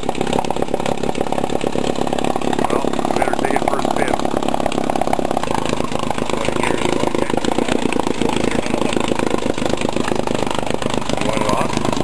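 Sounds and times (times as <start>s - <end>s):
outboard motor putter: 0.0s - 12.0s.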